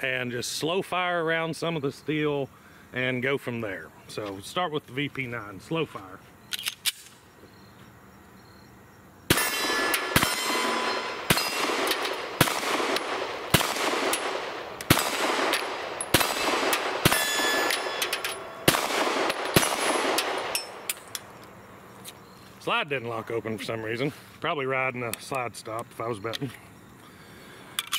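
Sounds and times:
steel targets ringing: 9.3 - 12.2, 15.9 - 21.0
pistol shots: 9.3 - 21.1.

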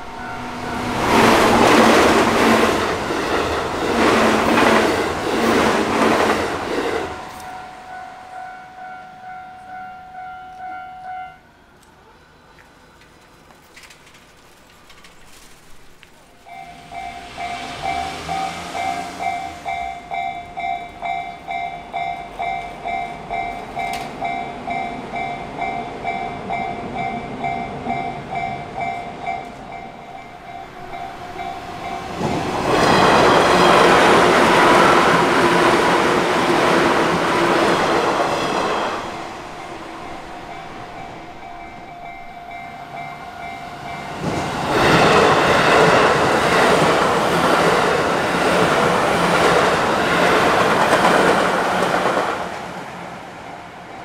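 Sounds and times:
train passing with wheel noise: 0.0 - 54.0
level crossing bell ringing: 7.0 - 11.4, 16.5 - 34.9, 38.9 - 44.5.

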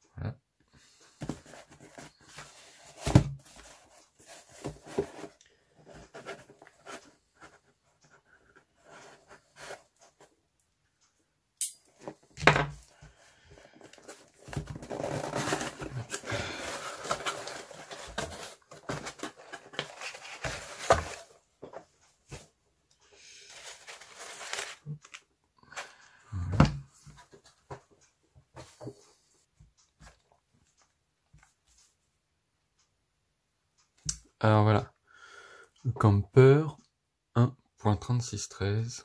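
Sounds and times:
crumpled packing paper rustling: 14.0 - 21.3, 23.5 - 25.2
cardboard tearing and rustling: 14.4 - 21.3, 23.6 - 24.8.

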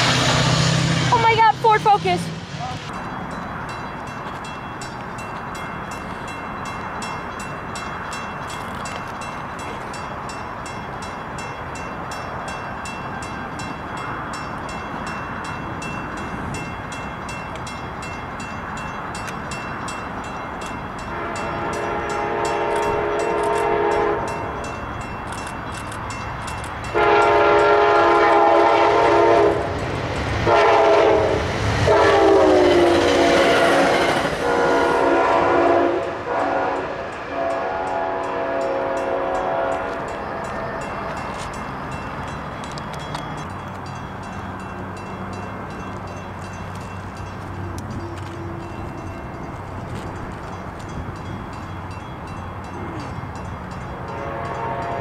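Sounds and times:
train horn blasts: 21.0 - 24.6, 26.9 - 29.7, 30.4 - 40.7, 54.1 - 55.0.

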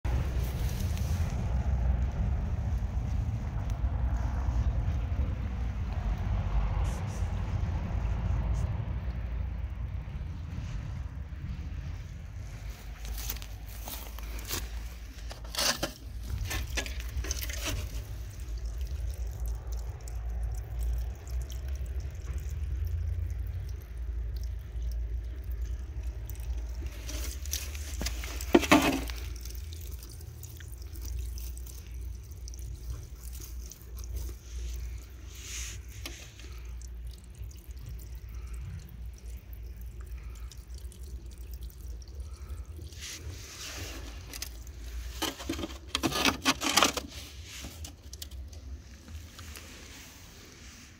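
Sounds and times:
low rumble: 0.0 - 28.4
water trickling from drain pipe: 0.1 - 50.9.

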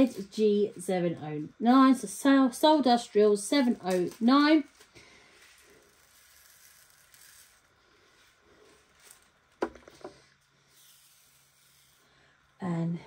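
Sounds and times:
small beads trickling into tray: 4.0 - 7.8.

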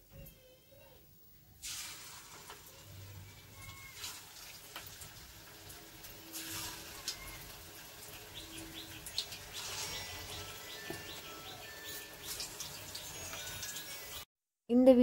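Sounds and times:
faint background noise: 0.0 - 12.1
small bird chirping: 7.0 - 14.3.

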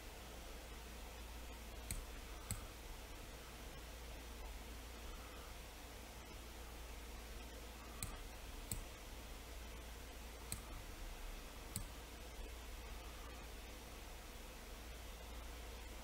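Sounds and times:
faint steady hiss: 0.0 - 16.0
computer mouse clicks: 1.8 - 2.7, 8.0 - 9.0, 10.5 - 10.9, 11.7 - 12.0.

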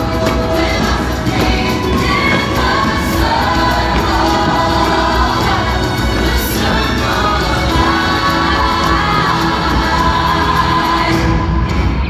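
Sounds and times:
music with choir singing: 0.0 - 12.0.

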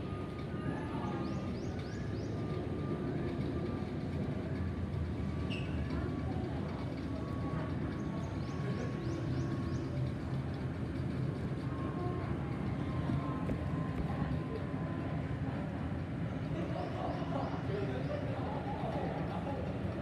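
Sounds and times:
jet engines rumbling overhead: 0.0 - 20.0.

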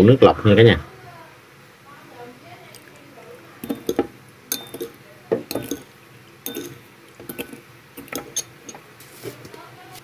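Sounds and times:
metal spoon clinking on bowl: 3.6 - 8.8.

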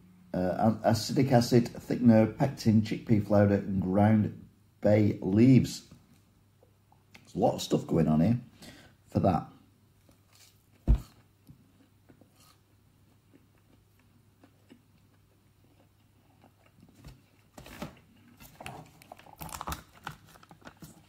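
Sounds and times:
crunchy food chewing: 10.0 - 21.0.

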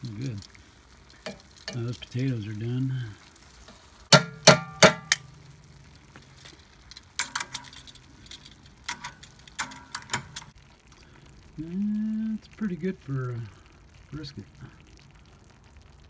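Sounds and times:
metal tongs clinking against pan: 1.2 - 2.0, 4.2 - 5.5, 6.9 - 10.5.

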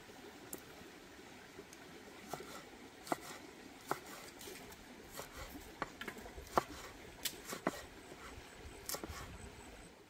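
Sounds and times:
knife chopping on wooden board: 2.3 - 4.3, 5.1 - 7.8.

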